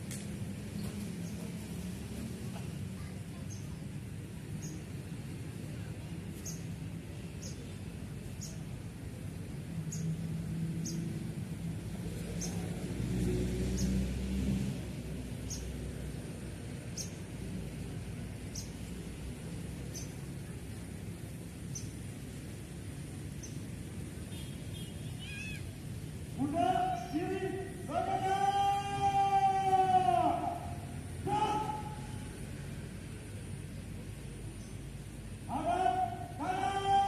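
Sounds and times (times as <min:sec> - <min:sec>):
low outdoor rumble: 0:00.0 - 0:37.0
small bird chirping: 0:06.4 - 0:06.7, 0:16.9 - 0:17.2, 0:19.8 - 0:20.2.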